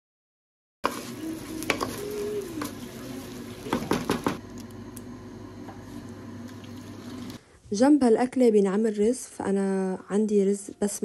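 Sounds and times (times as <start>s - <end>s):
wooden spoon stirring rice in pot: 0.8s - 4.4s
spoon knocking against pot: 3.7s - 4.4s.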